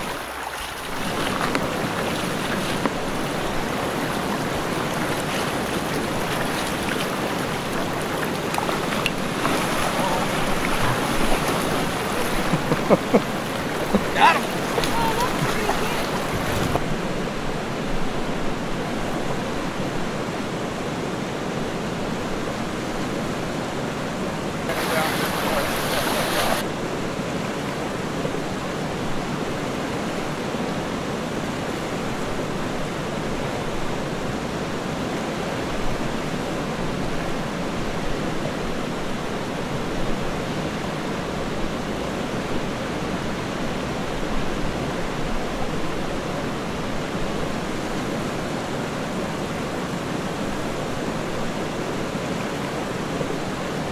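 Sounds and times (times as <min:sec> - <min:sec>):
fast-flowing river rushing: 0:00.0 - 0:53.9.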